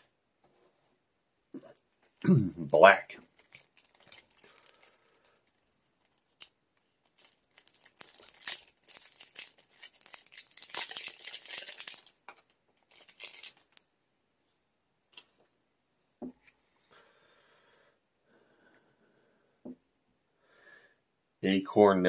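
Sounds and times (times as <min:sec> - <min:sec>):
cards clicking and rustling: 0:03.2 - 0:13.8.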